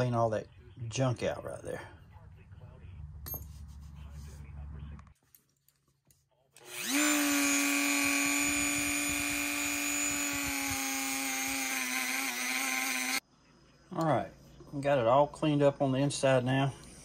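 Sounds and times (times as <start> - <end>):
rotary tool wire brush whine: 6.6 - 13.2.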